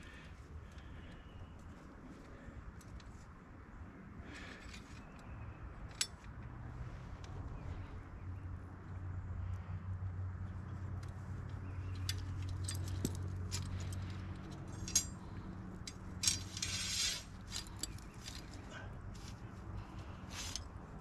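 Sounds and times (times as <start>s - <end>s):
metal trap and chain rattling: 11.7s - 18.8s, 20.2s - 20.8s.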